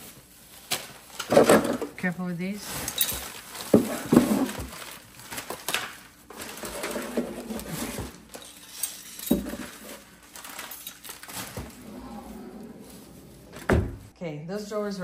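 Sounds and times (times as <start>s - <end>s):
faint handling rustle: 9.6s - 14.1s.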